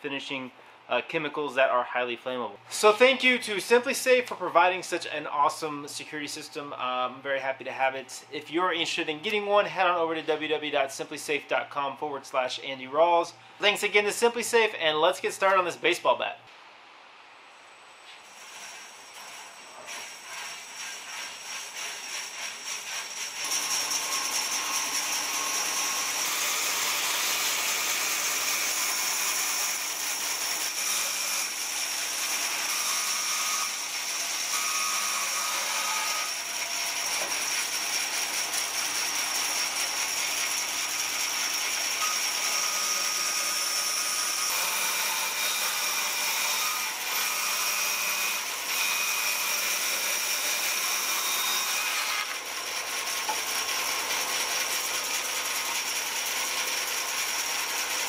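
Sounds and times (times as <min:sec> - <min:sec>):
bandsaw cutting log: 0:18.2 - 0:58.0.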